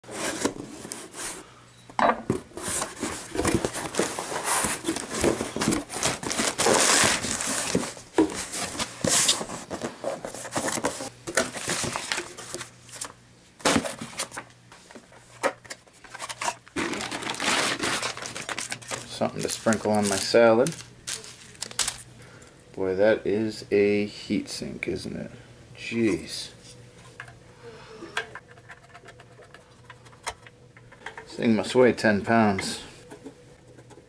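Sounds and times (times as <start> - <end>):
plastic packing crinkling: 2.7 - 14.4, 16.0 - 22.1.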